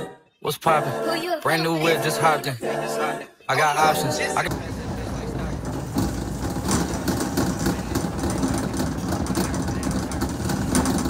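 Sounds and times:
shopping cart rattling: 4.5 - 11.0.

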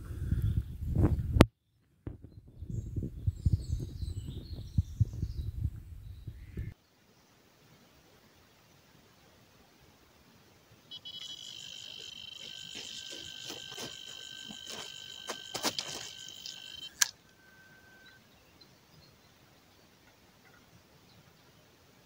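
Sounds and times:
bite alarm high tone: 10.9 - 18.2
lower alarm tone: 10.9 - 18.2
quick clicks: 11.0 - 17.2.

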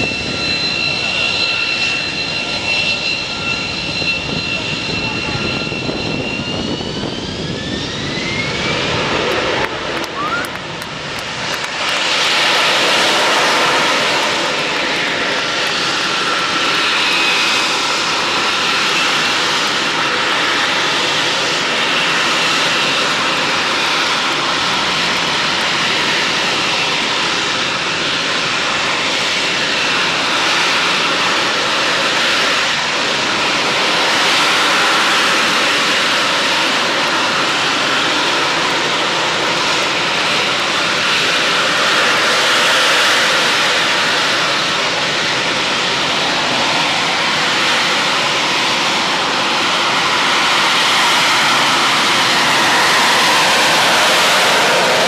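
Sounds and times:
high jet whine: 0.0 - 55.0
jet engine roaring: 0.0 - 55.0.

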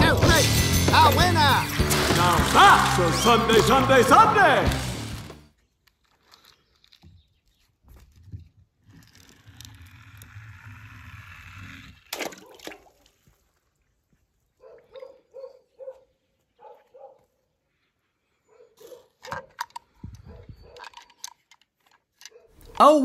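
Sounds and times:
toy truck rolling down ramp: 8.2 - 12.2
splash into pool: 12.1 - 13.2
dog barking: 14.6 - 17.3, 18.5 - 19.5, 22.3 - 22.7.

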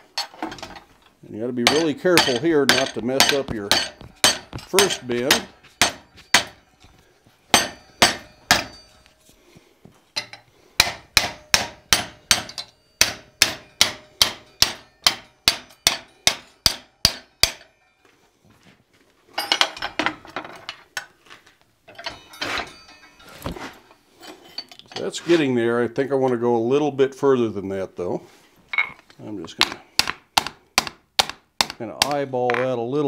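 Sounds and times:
metal tools clattering: 0.0 - 9.3, 10.1 - 10.5, 12.2 - 16.7, 19.3 - 21.1, 21.9 - 25.6, 28.7 - 29.6
hammer striking hot steel: 1.6 - 6.7, 7.5 - 9.0, 10.2 - 17.9, 29.6 - 32.2.

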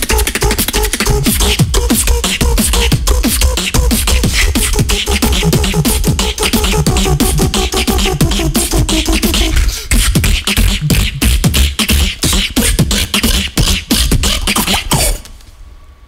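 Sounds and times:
beatboxing drum and bass: 0.0 - 15.4.

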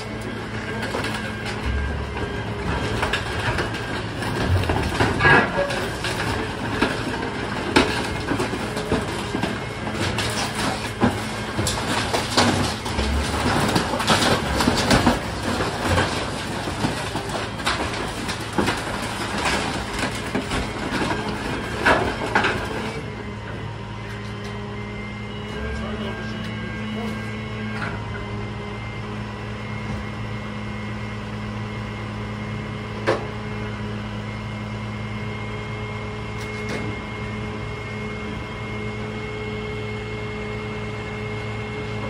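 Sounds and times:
wood debris cracking and snapping: 0.0 - 23.0
truck engine and hydraulics: 0.0 - 42.0.

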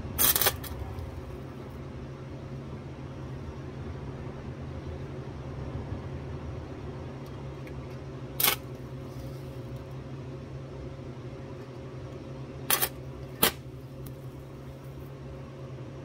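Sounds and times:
welder arc bursts: 0.0 - 0.7
steady machine hum: 0.0 - 16.0.

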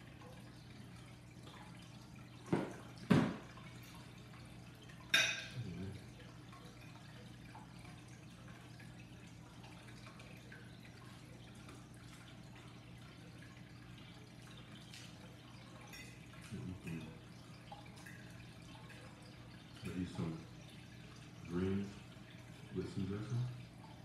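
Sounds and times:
tableware clatter: 5.1 - 5.6.

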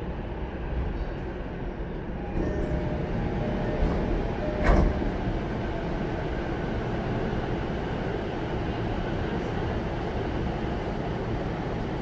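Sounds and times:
train interior low rumble: 0.0 - 12.0
sliding train doors thumping open: 2.4 - 5.3.

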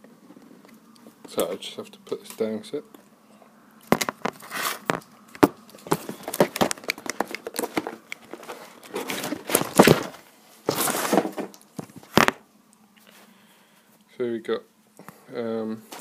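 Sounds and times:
handling knocks and clicks: 3.9 - 12.4
plastic crinkling rustles: 5.7 - 12.4.

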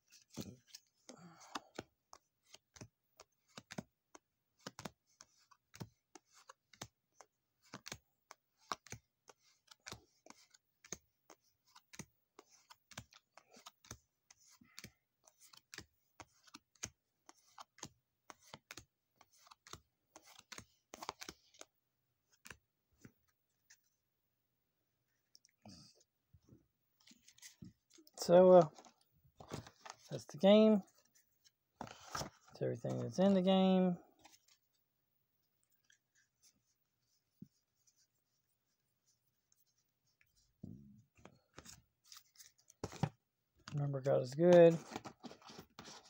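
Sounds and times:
cards being flipped: 1.5 - 3.9, 4.6 - 21.7, 22.3 - 23.8, 27.0 - 30.2, 30.9 - 34.6, 41.2 - 43.2.

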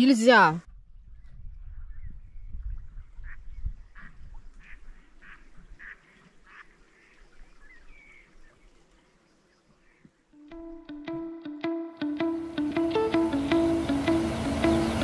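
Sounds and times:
ducks quacking: 3.2 - 7.2
plucked-string music: 10.4 - 15.0.

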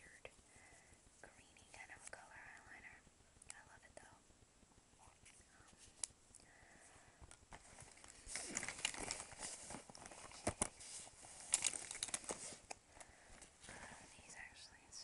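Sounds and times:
crinkly packaging rustles: 7.5 - 12.8.

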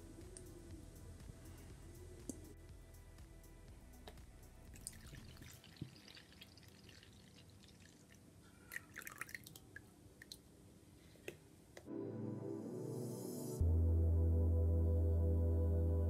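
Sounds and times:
water dripping and trickling: 4.7 - 10.4
small drips and splashes: 4.7 - 10.5.

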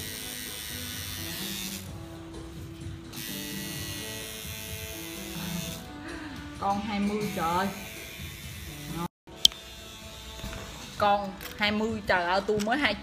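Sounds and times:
tattoo machine buzzing: 0.0 - 6.0, 7.0 - 11.0
quiet instrumental music: 0.0 - 13.0.

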